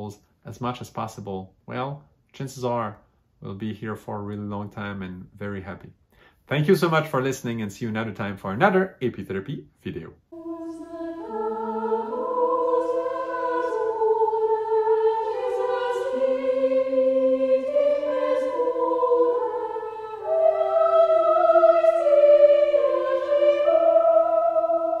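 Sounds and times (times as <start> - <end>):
slow music with held notes: 10.3 - 25.0.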